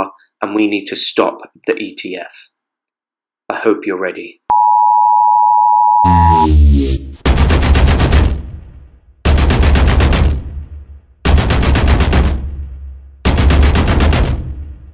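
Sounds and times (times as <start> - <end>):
machine-gun fire: 7.2 - 14.9.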